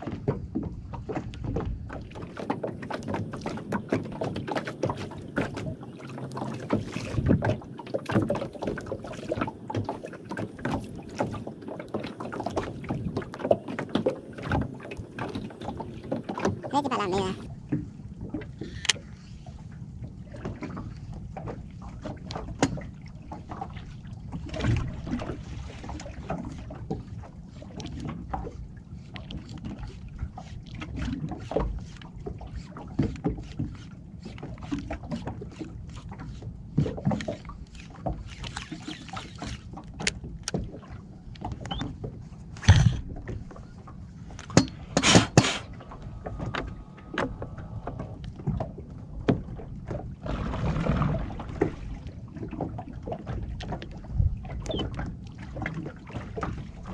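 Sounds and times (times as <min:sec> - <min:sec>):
water lapping against hull: 0:00.0 - 0:56.9
low steady rumble: 0:45.6 - 0:52.4.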